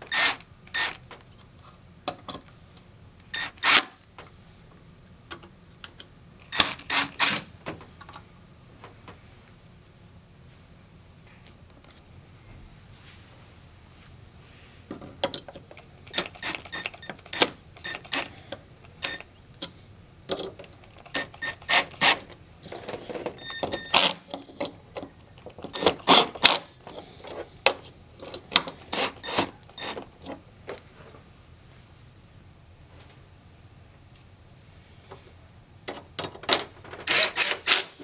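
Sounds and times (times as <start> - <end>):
cordless drill driving screws: 0.1 - 1.0, 3.4 - 3.9, 6.5 - 7.5, 16.1 - 18.3, 21.0 - 22.3, 28.8 - 30.0, 37.1 - 38.0
clatter of screws and metal parts: 15.2 - 19.7, 20.3 - 30.4, 35.9 - 37.9.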